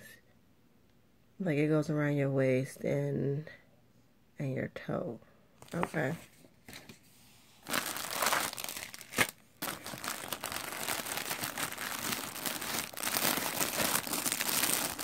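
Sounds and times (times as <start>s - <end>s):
plastic packaging crinkling: 7.6s - 15.0s.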